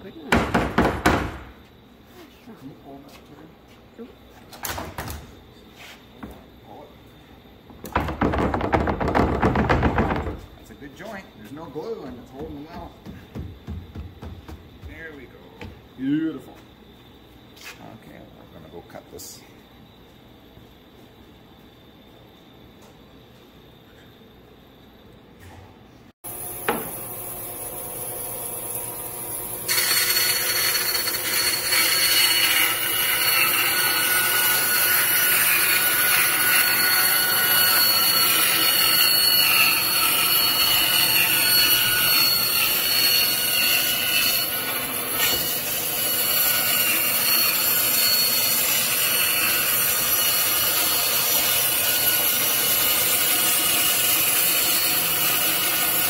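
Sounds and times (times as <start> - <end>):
power saw cutting wood: 26.3 - 56.0.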